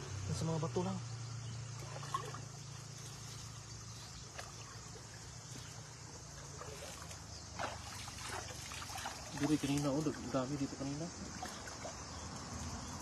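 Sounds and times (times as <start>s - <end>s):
stream water flowing: 1.1s - 13.0s
hands splashing in water: 6.6s - 10.1s, 11.3s - 12.0s.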